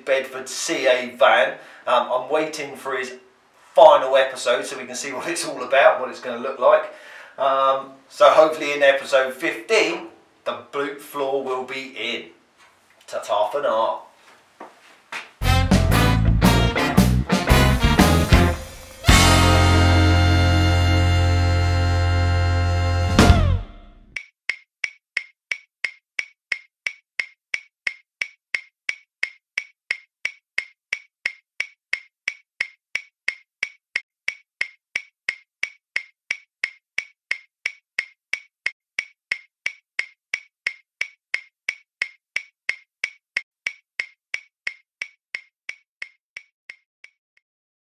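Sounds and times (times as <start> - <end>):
background music chord: 15.4 - 24.0
clock ticking: 24.1 - 47.2.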